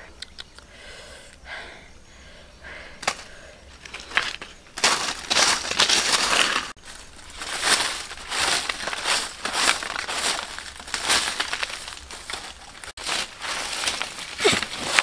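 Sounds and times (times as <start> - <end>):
dry leaves crunching and rustling: 3.8 - 15.0.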